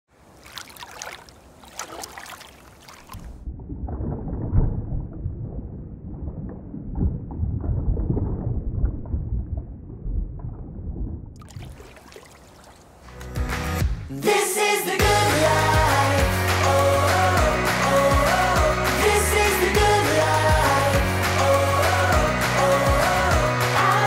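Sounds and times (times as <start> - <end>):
water splashing around kayak: 0.1 - 4.9, 11.4 - 13.3.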